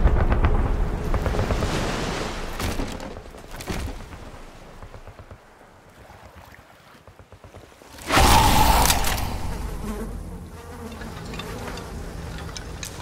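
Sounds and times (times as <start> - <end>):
rushing rumble: 0.0 - 5.8.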